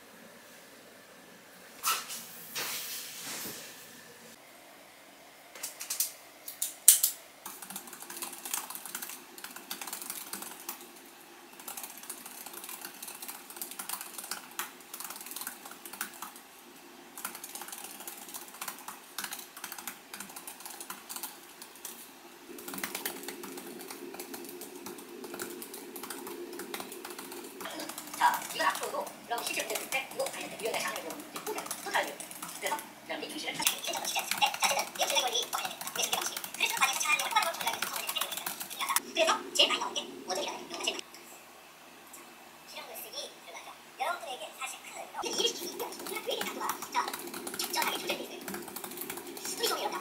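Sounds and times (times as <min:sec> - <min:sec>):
laptop keyboard typing: 0:06.9 - 0:32.9, 0:33.6 - 0:39.0, 0:45.2 - 0:50.0.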